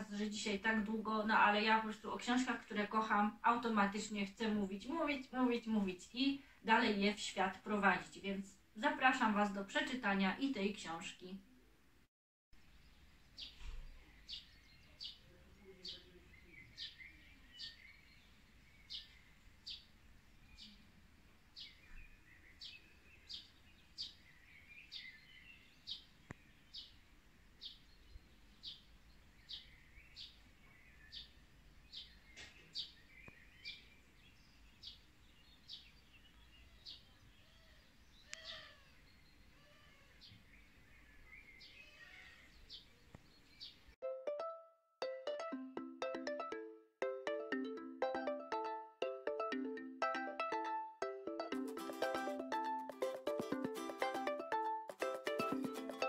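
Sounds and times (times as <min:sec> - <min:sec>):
small bird chirping: 0:12.6 - 0:21.0, 0:21.6 - 0:44.0.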